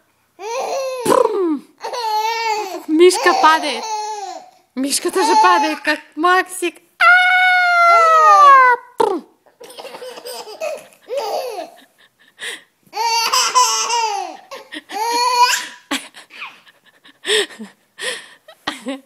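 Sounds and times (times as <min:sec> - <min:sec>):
baby laughing with squeals: 0:00.4 - 0:05.9, 0:09.6 - 0:12.0, 0:13.0 - 0:16.8.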